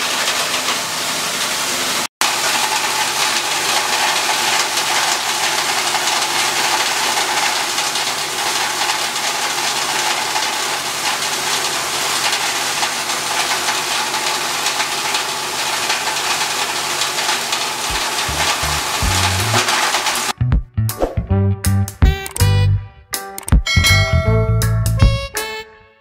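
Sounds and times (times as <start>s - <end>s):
shredder noise: 0.0s - 20.4s
petrol engine running: 2.2s - 20.4s
music: 17.9s - 19.7s, 20.4s - 26.0s.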